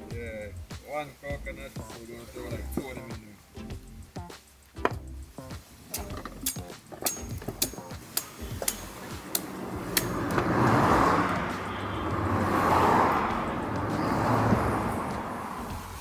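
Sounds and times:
road vehicles passing: 4.6 - 16.0.

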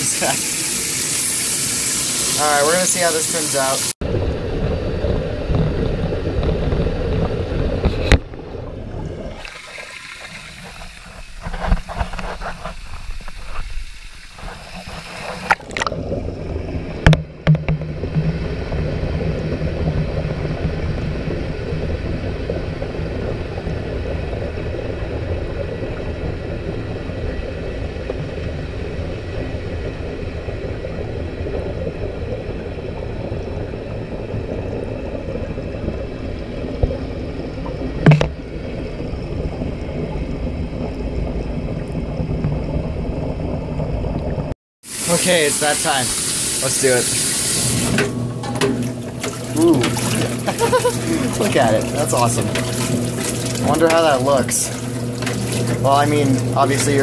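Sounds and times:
muffled rush of water: 0.0 - 57.0
low hum: 4.0 - 44.6.

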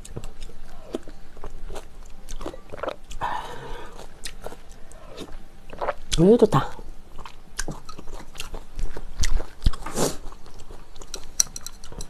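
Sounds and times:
wet chewing and mouth smacks: 0.0 - 3.2, 3.9 - 6.2, 7.2 - 12.0.

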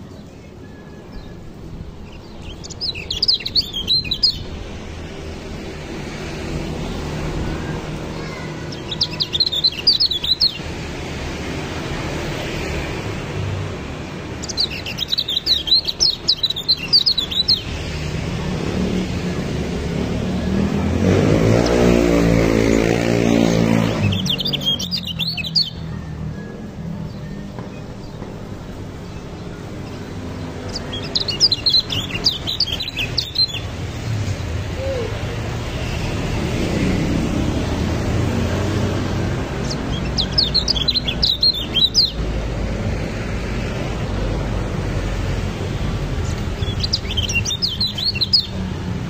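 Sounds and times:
bird twittering: 2.0 - 4.6, 8.2 - 10.6, 14.4 - 17.8, 23.8 - 28.2, 30.6 - 33.8, 39.6 - 42.3, 46.3 - 48.7.

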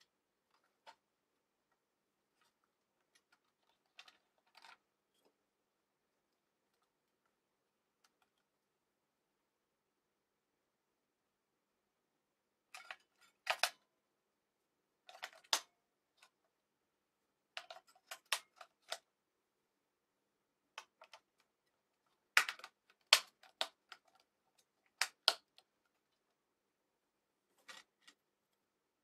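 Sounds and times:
batteries clicking into battery box: 22.3 - 24.2, 24.9 - 25.6.

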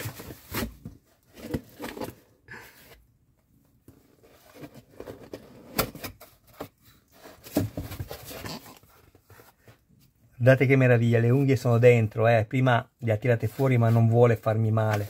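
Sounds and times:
cardboard box rustling and scraping: 0.0 - 2.3, 4.0 - 9.8.

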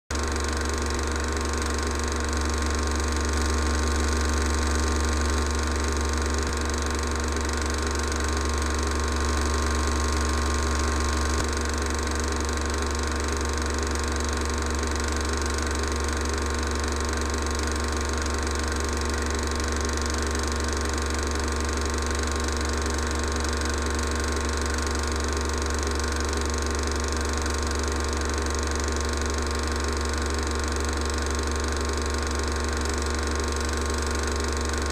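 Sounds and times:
low hum: 0.2 - 14.6
film projector mechanical whirr: 0.2 - 34.9.

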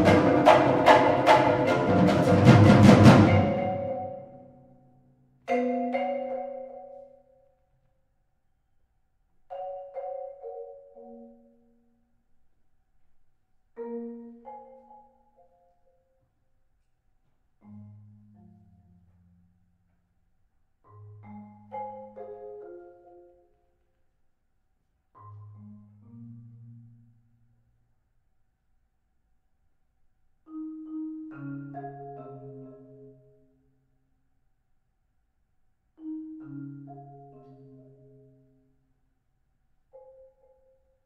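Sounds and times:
marimba and vibraphone chords: 0.0 - 4.8, 5.5 - 7.4, 9.5 - 11.9, 20.9 - 23.6, 30.5 - 33.5, 36.0 - 38.7.

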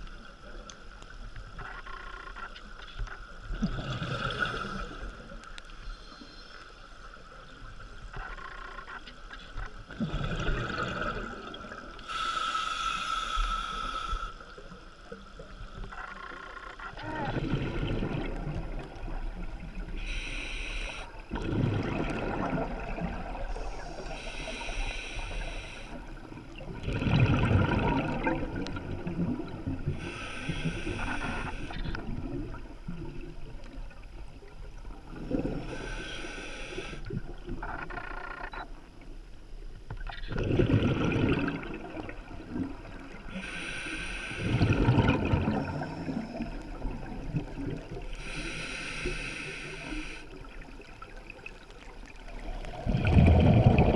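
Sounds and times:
bubbling exhale underwater: 10.0 - 11.8, 17.0 - 19.2, 21.3 - 24.1, 26.6 - 29.9, 40.1 - 43.6, 44.4 - 49.1, 52.2 - 53.9
hissing regulator inhale: 12.0 - 14.6, 20.0 - 21.2, 23.6 - 26.1, 29.9 - 32.0, 35.6 - 37.1, 43.3 - 44.9, 48.1 - 50.4.

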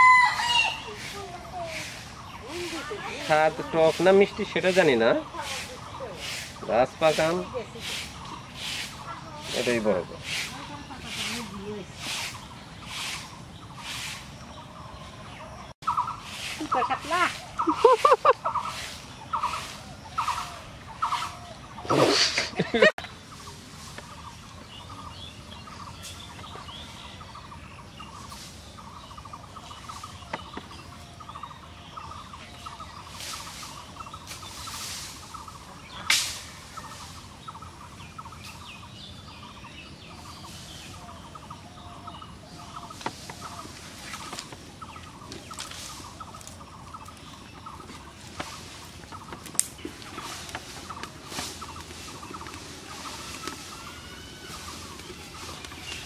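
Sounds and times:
domestic fowl calling: 0.0 - 1.2, 15.8 - 22.9
small birds calling: 0.0 - 56.0
sticks rustling and snapping: 43.0 - 53.9
fire cracking: 43.0 - 56.0.

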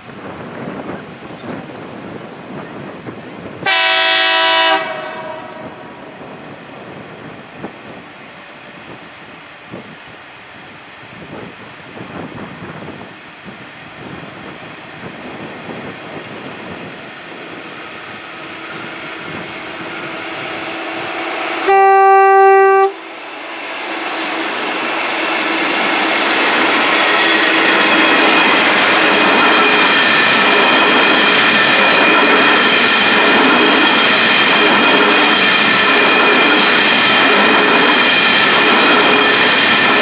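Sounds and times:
diesel locomotives: 0.0 - 40.0
wagon wheels rumbling on rail: 0.0 - 40.0
train horn blast: 3.6 - 6.0, 20.1 - 23.0.

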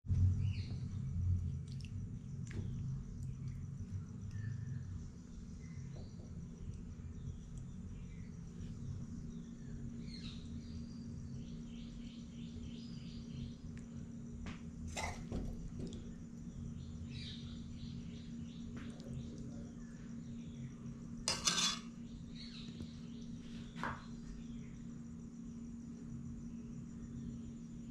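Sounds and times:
insects chirping: 0.1 - 27.9
metal spoon clinking on glass plate: 21.3 - 21.9.

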